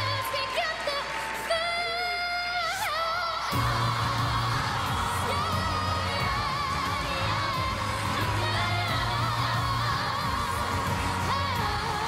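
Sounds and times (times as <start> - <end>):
children's choir singing: 3.5 - 12.0
backing track with steady bass: 3.6 - 12.0.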